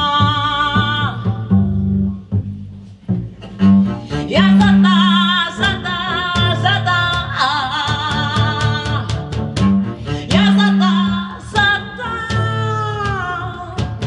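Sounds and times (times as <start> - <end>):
woman singing wordless line: 0.0 - 1.5, 4.3 - 9.3, 10.2 - 14.0
double bass low notes: 0.0 - 14.0.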